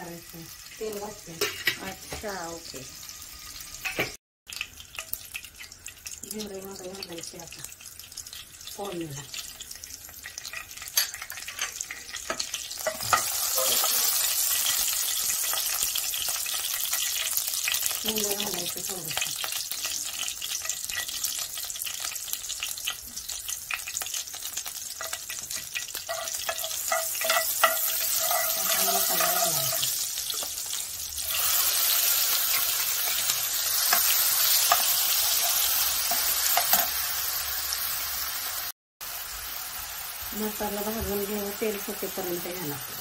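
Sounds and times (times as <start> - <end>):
seeds sizzling in hot oil: 0.0 - 43.0
metal spoon clicking and scraping: 25.0 - 30.5, 33.9 - 37.0.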